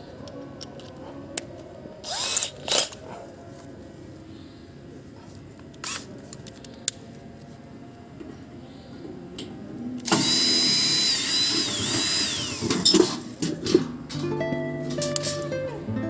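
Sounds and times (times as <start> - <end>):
cordless drill motor whining: 2.1 - 2.5, 10.1 - 12.8.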